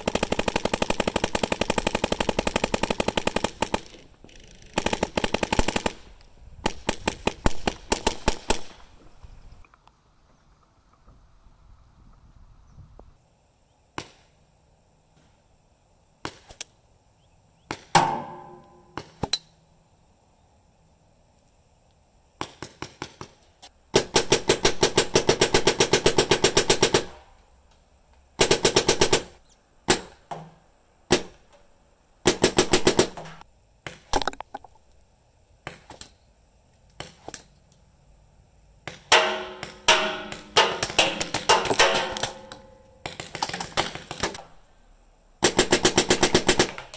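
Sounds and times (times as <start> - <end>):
paintball markers firing: 38.9 - 44.5.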